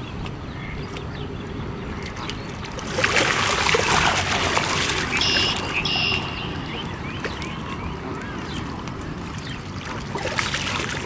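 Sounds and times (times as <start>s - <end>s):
lapping water: 0.2s - 11.0s
fish splashing at water surface: 2.5s - 7.6s, 9.0s - 11.0s
short high calls: 5.0s - 7.0s.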